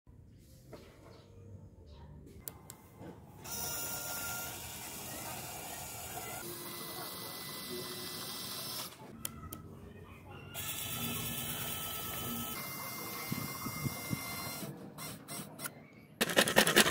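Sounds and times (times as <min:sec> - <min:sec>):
small motor whirring whine: 0:03.4 - 0:09.0, 0:10.6 - 0:15.8.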